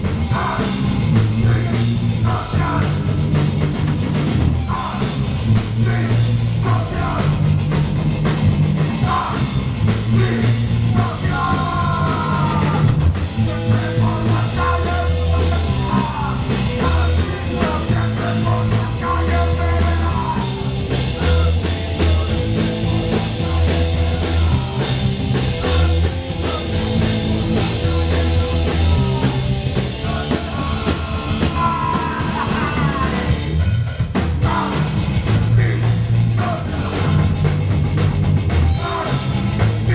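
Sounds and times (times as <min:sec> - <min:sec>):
bass guitar riff: 0:00.0 - 0:39.9
drum kit beats: 0:00.0 - 0:39.9
electric guitar: 0:00.0 - 0:39.9
person yelling into a microphone: 0:11.0 - 0:12.9.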